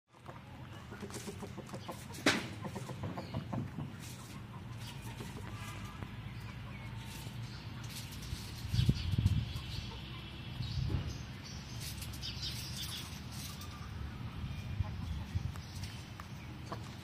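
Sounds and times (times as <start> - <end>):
chickens clucking softly: 0.1 - 7.4
beaks tapping on concrete: 0.9 - 10.0.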